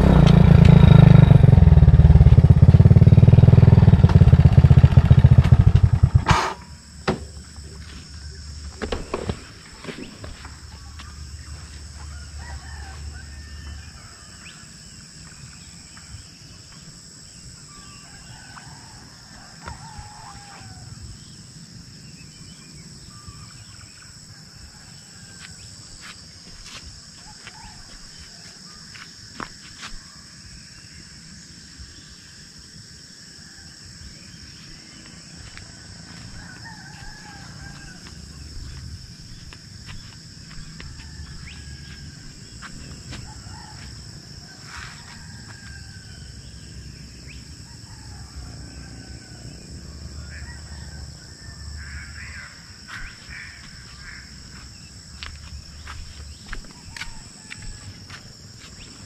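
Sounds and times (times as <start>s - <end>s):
rooster crowing: 11.9s - 14.8s, 17.8s - 21.3s, 24.3s - 25.8s, 27.2s - 28.6s, 35.4s - 38.8s, 39.8s - 59.0s.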